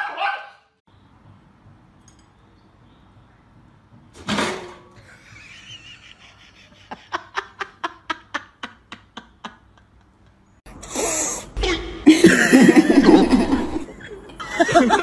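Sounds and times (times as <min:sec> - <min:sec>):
person laughing: 0:05.0 - 0:10.4, 0:11.6 - 0:15.0.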